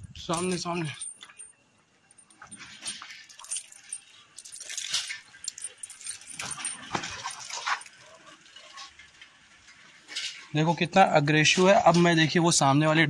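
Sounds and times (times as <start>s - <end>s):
chain leash rattling: 0.2s - 10.6s.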